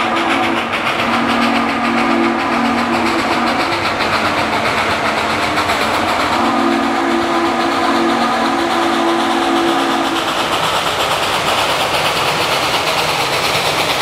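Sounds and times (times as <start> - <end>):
steam whistle blasts: 0.0 - 4.6, 5.9 - 10.3
steam locomotive exhaust roar: 0.0 - 14.0.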